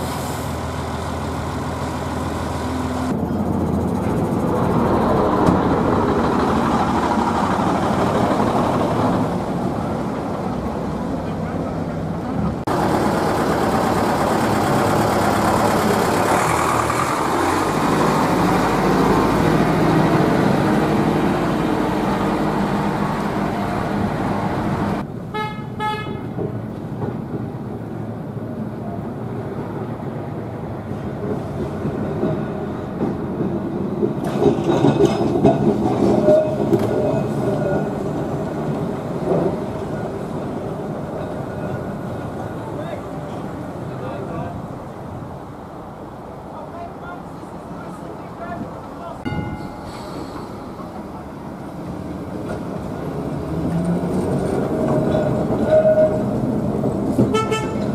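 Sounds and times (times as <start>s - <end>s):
bus diesel engine running: 0.0s - 25.3s, 26.5s - 57.9s
tram rumbling on rails: 0.0s - 57.9s
tram wheel squeal: 33.8s - 38.4s, 49.3s - 57.9s.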